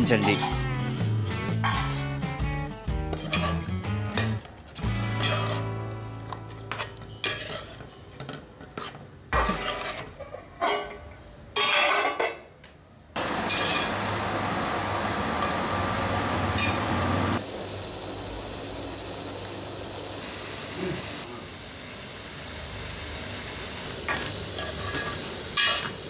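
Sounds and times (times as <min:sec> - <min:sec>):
metal spoon clattering on pot: 0:00.0 - 0:00.7
food hissing on stove: 0:13.2 - 0:26.0.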